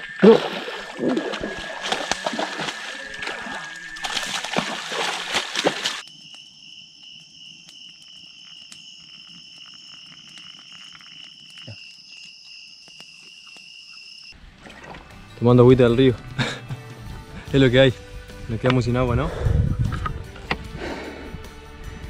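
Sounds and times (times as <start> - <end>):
steady high whine: 0.0 - 4.7
stream water splashing: 0.0 - 6.0, 14.4 - 15.5.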